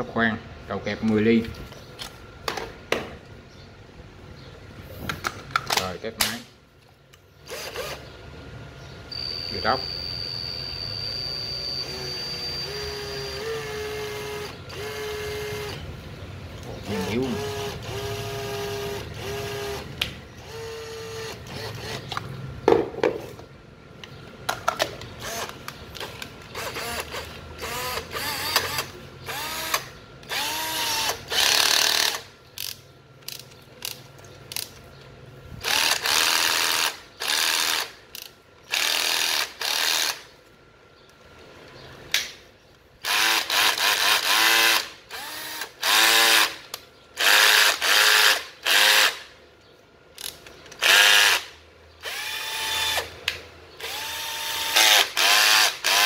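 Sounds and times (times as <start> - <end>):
cordless drill motor spinning: 7.4 - 8.1, 10.3 - 15.8, 16.8 - 22.2, 25.2 - 25.6, 26.4 - 32.2, 35.6 - 40.2, 43.0 - 46.6, 47.2 - 49.2, 50.2 - 53.1, 53.8 - 56.0.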